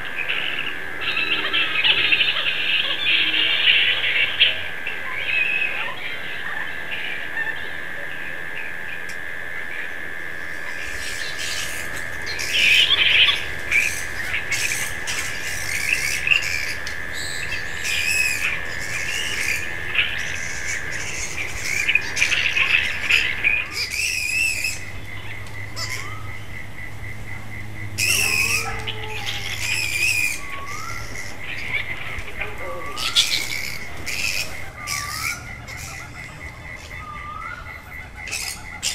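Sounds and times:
bats squawking: 0.0s - 38.9s
steady high-pitched tone: 0.0s - 38.9s.

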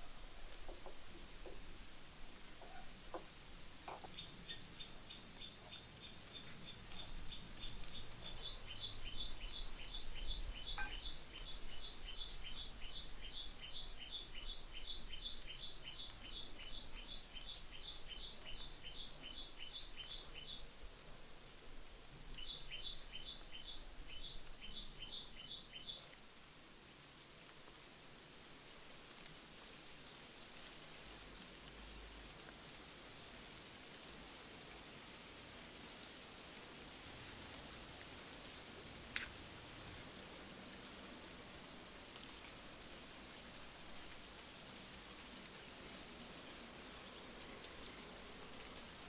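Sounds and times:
bird chirping rapidly: 4.1s - 12.6s.

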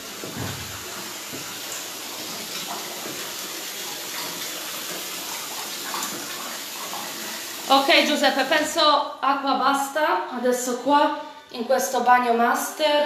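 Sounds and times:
water running from a tap: 0.0s - 8.8s.

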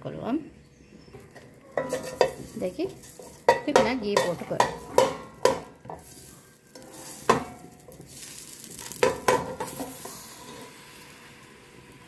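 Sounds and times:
faint sizzle of melting fat: 0.6s - 12.0s
spoon knocking in metal pot: 1.8s - 2.5s, 3.2s - 6.1s, 9.0s - 9.9s.

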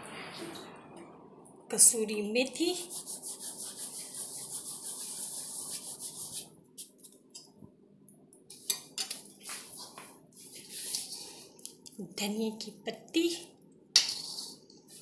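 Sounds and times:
steel spatula scraping pan: 14.0s - 15.0s.

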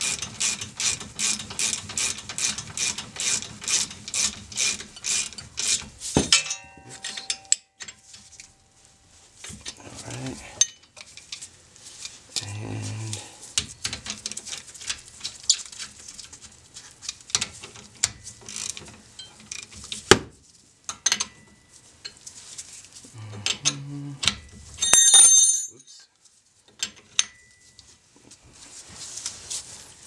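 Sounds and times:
hand ratchet clicking: 0.0s - 5.9s
steel hand tools clinking: 6.2s - 8.2s, 24.8s - 26.0s.

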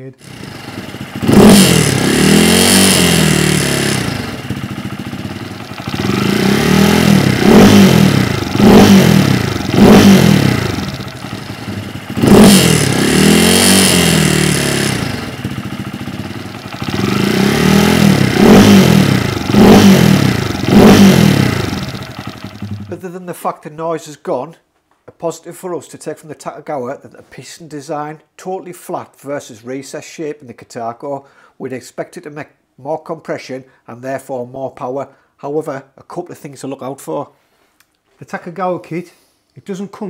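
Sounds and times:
motorcycle engine revving: 0.2s - 23.0s
metallic engine rattle: 3.0s - 23.0s.

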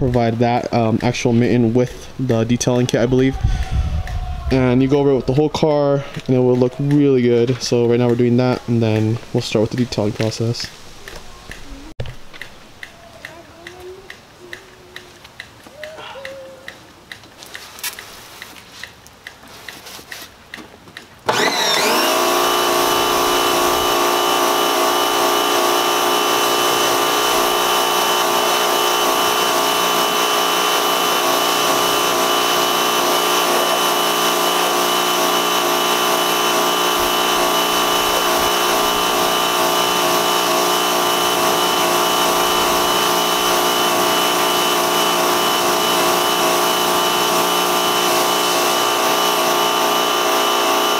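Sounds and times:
pressure washer motor whining: 0.0s - 11.6s, 21.3s - 50.9s
water jet hissing: 21.4s - 50.9s.

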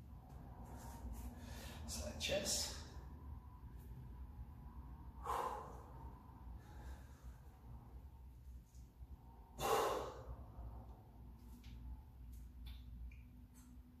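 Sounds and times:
low steady hum: 0.0s - 14.0s
man exhaling hard: 5.2s - 6.0s, 9.6s - 10.5s.

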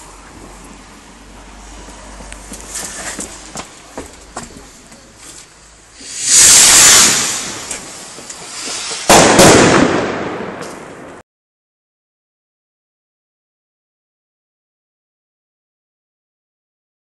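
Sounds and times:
rocket launching hiss: 5.9s - 10.6s
distant firecrackers popping: 6.0s - 11.2s
firecracker bang: 6.0s - 11.2s.

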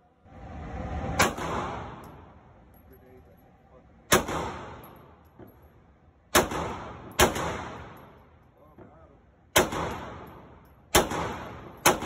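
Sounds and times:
pistol shots echoing indoors: 4.1s - 5.0s, 6.3s - 8.2s, 9.5s - 12.0s.

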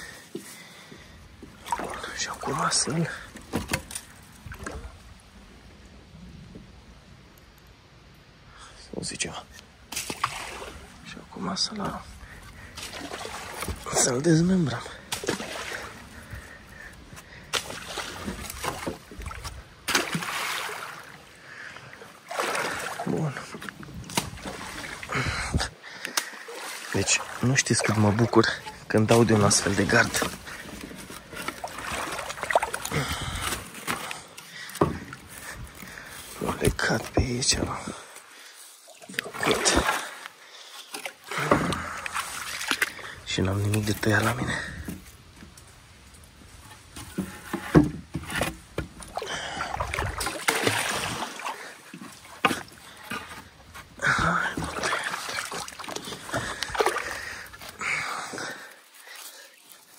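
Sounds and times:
river water sloshing: 0.0s - 6.4s, 9.2s - 59.9s
wooden stakes knocking and cracking: 3.4s - 4.8s.

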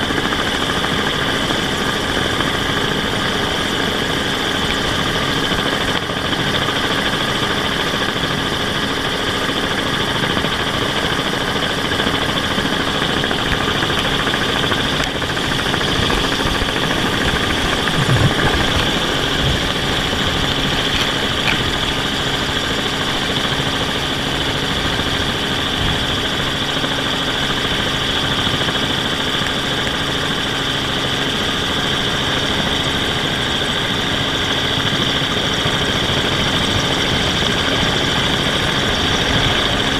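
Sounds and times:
drone motors whining: 12.6s - 23.5s.

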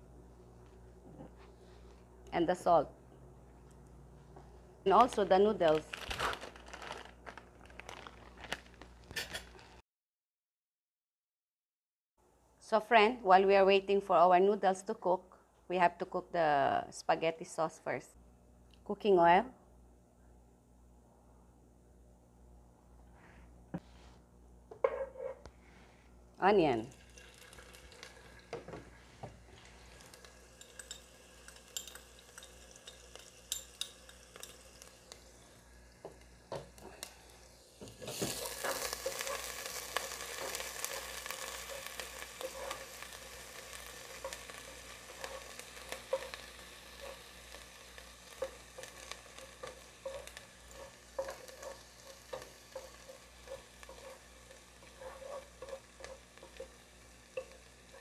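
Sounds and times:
onion sizzling in oil: 26.9s - 58.0s
spatula scraping a pot: 38.0s - 43.0s, 44.1s - 47.3s, 48.3s - 58.0s.

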